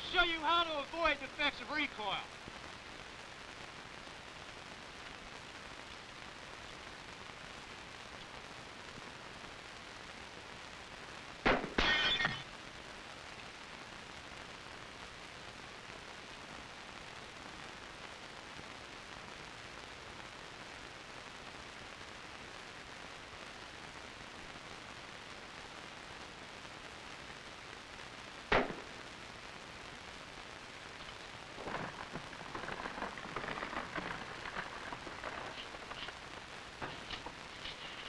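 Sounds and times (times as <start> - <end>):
film soundtrack hiss: 0.0 - 38.0
crackling and clatter: 2.2 - 38.0
rifle shot: 11.4 - 12.4, 28.5 - 29.0.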